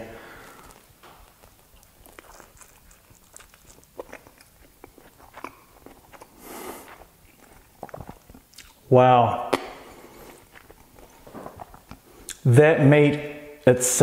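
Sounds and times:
person chewing: 0.2 - 8.9, 9.5 - 12.5.

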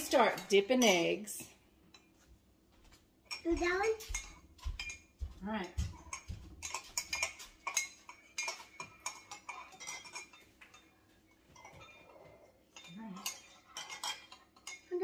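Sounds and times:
metal spoons clinking against cups: 0.0 - 2.1, 3.3 - 15.0.

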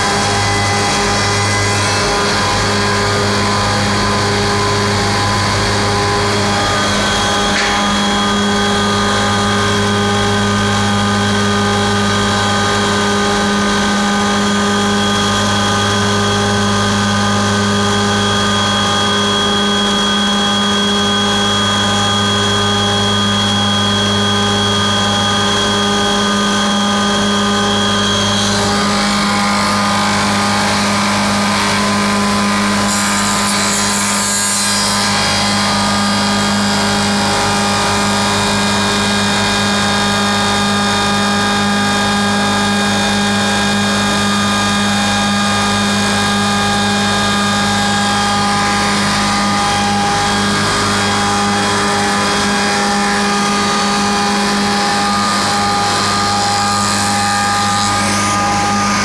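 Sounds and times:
high machine whine: 0.0 - 59.0
rough machine noise: 0.0 - 59.0
machine motors humming: 44.2 - 59.0.

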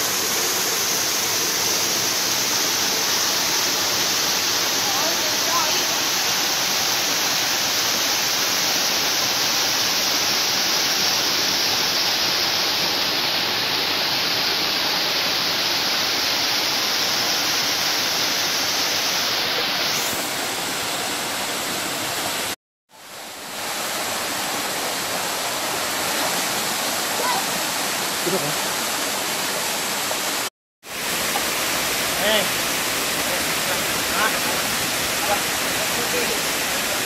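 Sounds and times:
waterfall rushing: 0.0 - 37.0.

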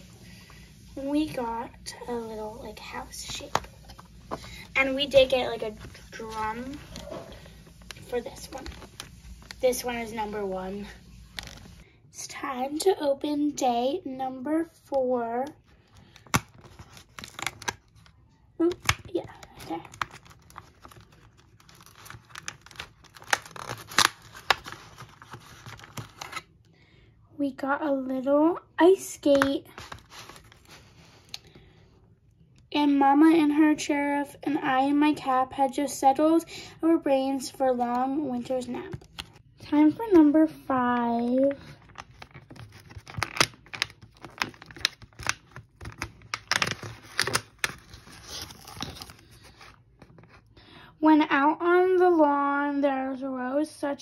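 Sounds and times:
plastic crackling and snapping: 15.4 - 26.5, 29.3 - 31.5, 38.8 - 39.7, 41.4 - 50.4
cardboard tearing: 16.2 - 18.0, 18.7 - 26.5, 41.9 - 49.8.

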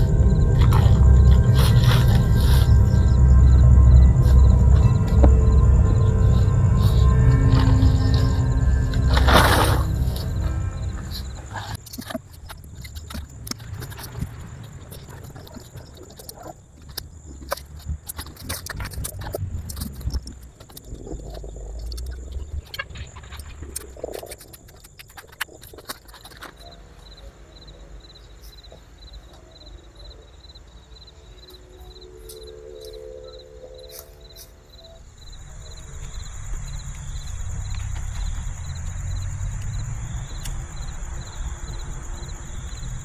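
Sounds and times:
cricket chirping: 0.0 - 43.0
tent poles clicking: 11.5 - 26.7.

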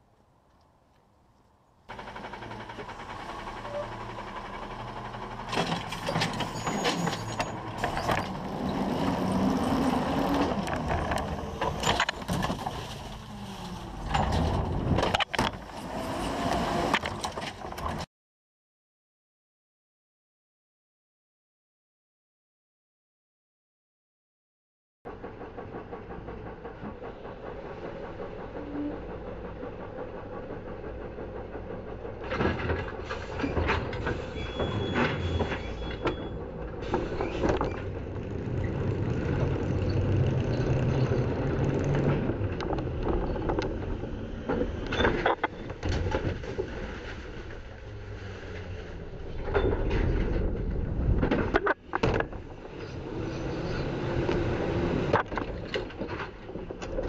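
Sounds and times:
garbage truck engine running: 1.9 - 14.9, 25.1 - 51.2.

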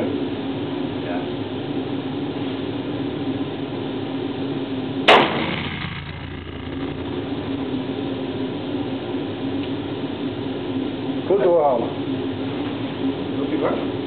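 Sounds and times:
steady low hum: 0.0 - 14.0
revolver shot: 5.1 - 7.7.

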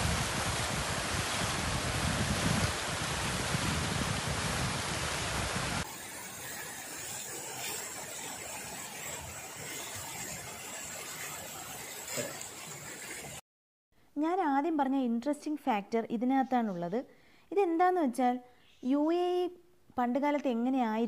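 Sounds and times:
fountain jets splashing: 0.0 - 13.4.

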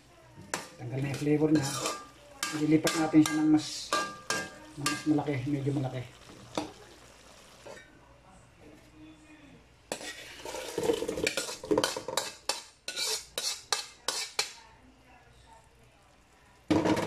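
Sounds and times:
metal spoon scraping a wok: 0.5 - 5.9, 9.9 - 14.6.

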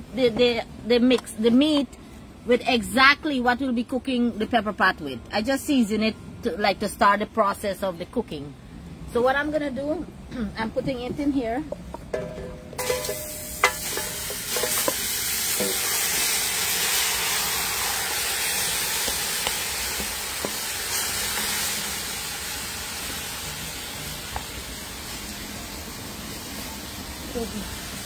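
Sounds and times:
wooden spoon knocking pot: 11.1 - 15.0
meat sizzling in a pot: 12.8 - 28.0.

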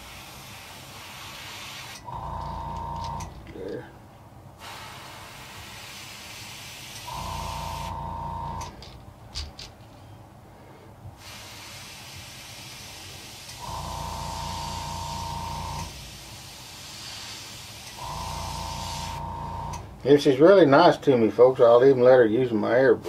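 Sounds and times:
airbrush spraying hiss: 0.0 - 2.1, 4.6 - 8.0, 11.2 - 13.7, 14.4 - 19.3
air compressor motor whine: 2.0 - 3.5, 7.0 - 8.8, 13.5 - 16.1, 17.9 - 20.1.

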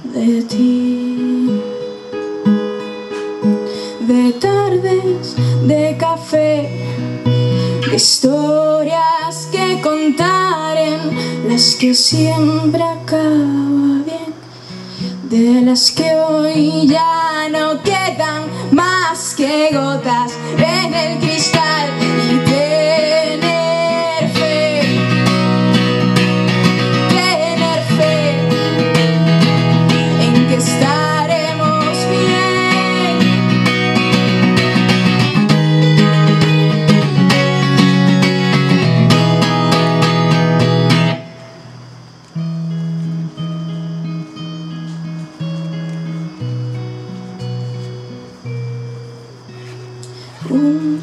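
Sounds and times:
woman singing: 0.0 - 2.2, 3.4 - 37.7, 50.2 - 51.0
acoustic guitar strumming: 0.0 - 51.0.

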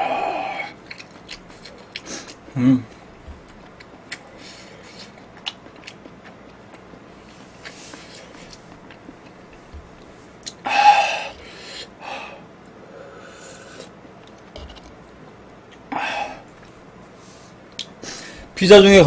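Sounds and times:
mouth chewing sounds: 0.6 - 10.7.

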